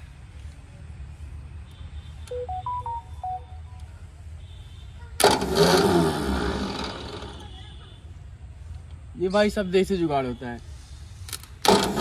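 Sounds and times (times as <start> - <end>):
short beeping tones: 2.3 - 3.8
starter motor cranking diesel engine: 5.2 - 7.4, 11.6 - 12.0.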